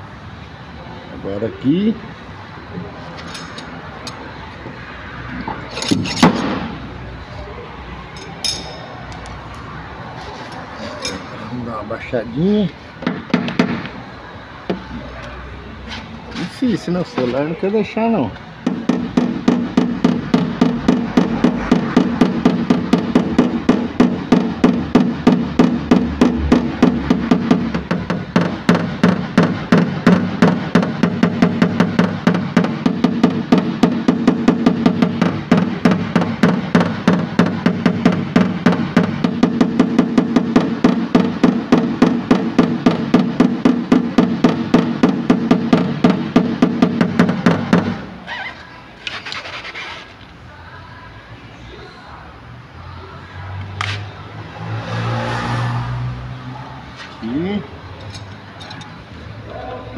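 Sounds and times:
hammer tapping metal punch: 0:08.2 - 0:09.3.

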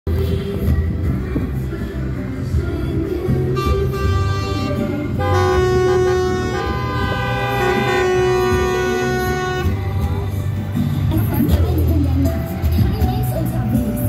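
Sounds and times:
passing engines rumbling: 0:00.1 - 0:14.0
vehicle horns blasting: 0:03.4 - 0:10.1.

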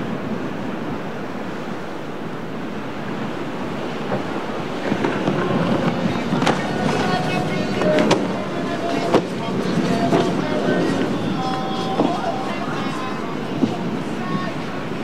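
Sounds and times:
wind buffeting microphone: 0:00.0 - 0:15.0
surf breaking: 0:02.6 - 0:15.0.

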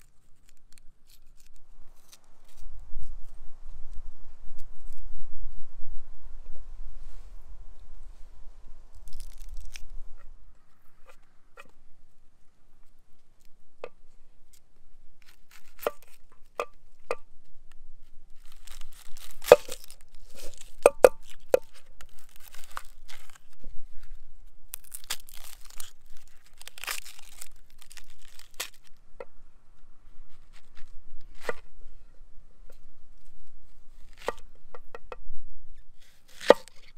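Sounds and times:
onion skin crackling: 0:00.0 - 0:03.2, 0:08.9 - 0:11.8, 0:12.8 - 0:29.1, 0:32.7 - 0:34.5, 0:36.0 - 0:36.9.

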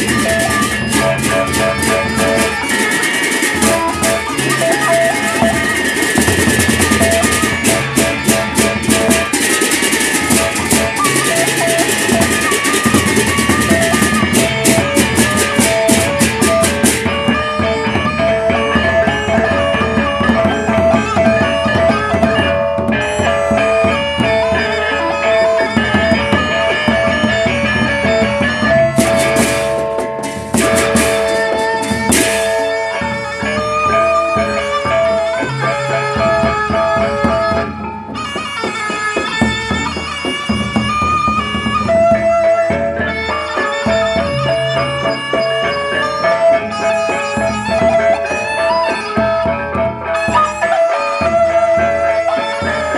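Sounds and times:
hand cymbals clashing: 0:00.0 - 0:17.3
barrel drums beaten with sticks: 0:26.1 - 0:32.9.

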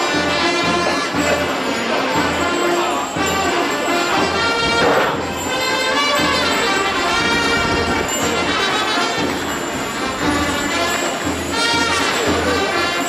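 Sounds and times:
wind band playing held notes: 0:00.0 - 0:13.0.

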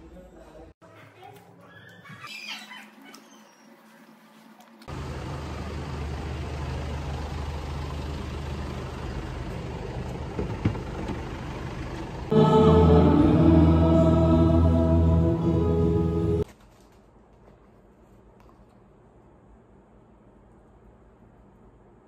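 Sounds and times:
vehicle engine rumble: 0:04.9 - 0:16.4.

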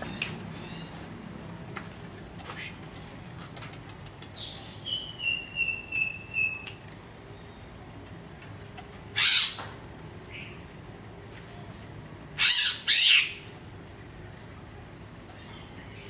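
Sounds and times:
harsh bird squawk: 0:09.2 - 0:09.7, 0:12.4 - 0:13.5.

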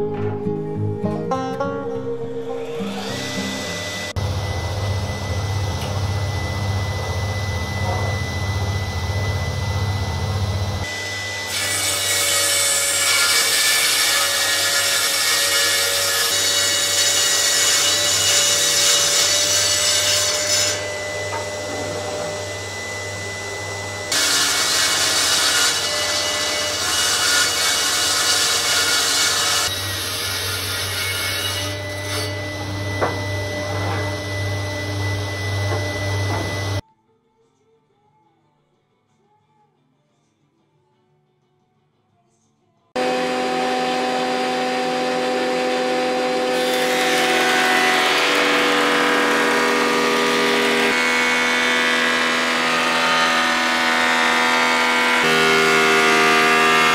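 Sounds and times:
shop vacuum running: 0:02.4 - 0:36.8, 0:43.0 - 0:56.9
table saw ripping boards: 0:10.9 - 0:23.3, 0:24.0 - 0:36.8, 0:43.0 - 0:56.9.

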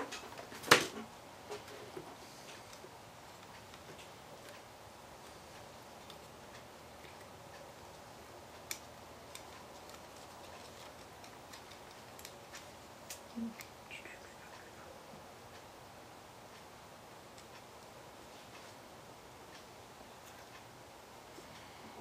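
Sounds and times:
faint steady hiss: 0:00.0 - 0:22.0.

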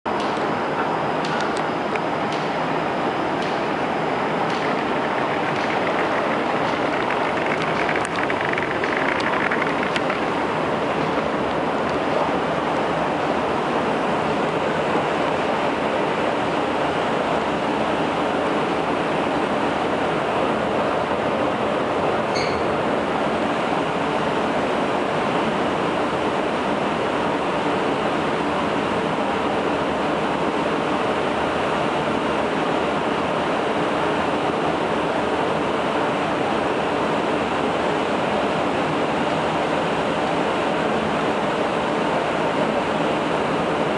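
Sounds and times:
escalator running: 0:00.2 - 0:14.4.

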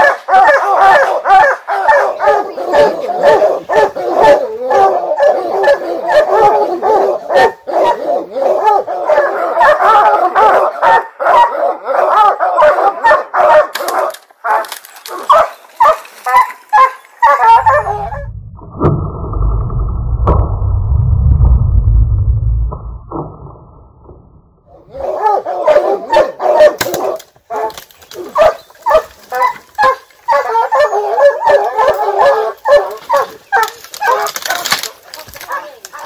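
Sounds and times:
hounds baying and barking: 0:00.0 - 0:18.2, 0:24.7 - 0:36.0
low muffled rumble: 0:17.5 - 0:24.7.

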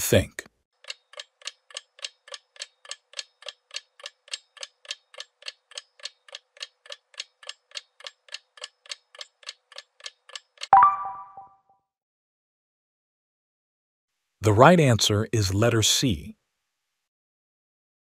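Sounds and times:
countdown timer ticking: 0:10.7 - 0:11.5
ringing tone: 0:10.8 - 0:11.6.

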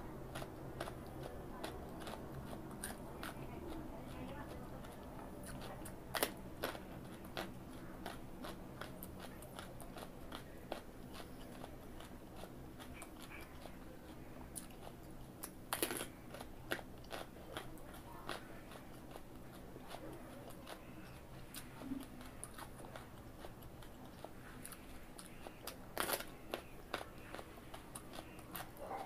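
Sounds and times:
carrot crunching: 0:00.2 - 0:29.0.

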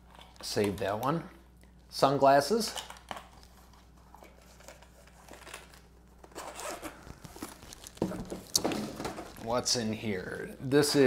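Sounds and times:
zipper of hard case: 0:06.3 - 0:07.0.

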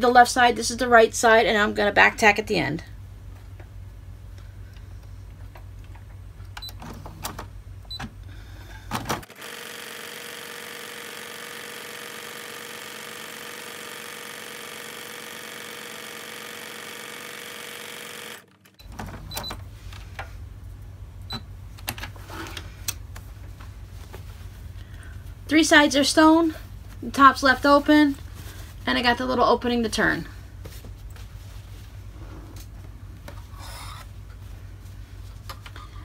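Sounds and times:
sewing machine stitching: 0:09.2 - 0:19.5
fabric rustling: 0:23.2 - 0:24.8, 0:28.0 - 0:29.2, 0:30.5 - 0:33.3.

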